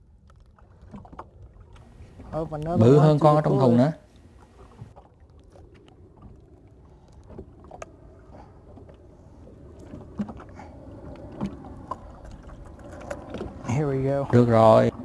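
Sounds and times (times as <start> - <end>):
water lapping against boat hull: 0.0 - 15.0.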